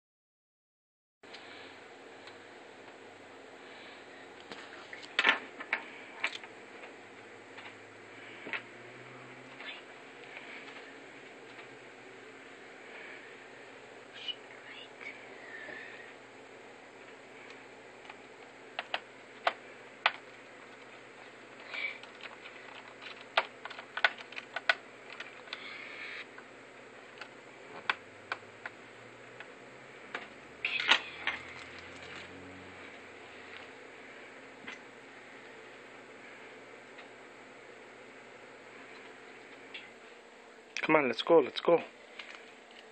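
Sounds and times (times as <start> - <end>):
low room noise: 1.3 - 42.9
plastic keyboard clicks: 22.0 - 25.6.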